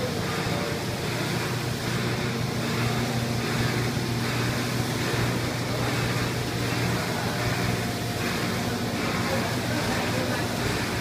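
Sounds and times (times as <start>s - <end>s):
broad machine hiss: 0.0s - 11.0s
low machine hum: 0.0s - 11.0s.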